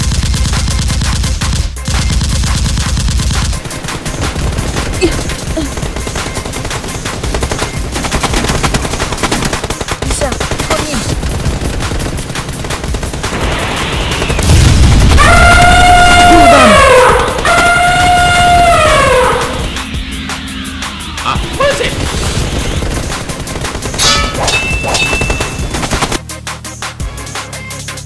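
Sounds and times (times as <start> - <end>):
automatic gunfire: 2.1 - 15.8, 21.9 - 26.2.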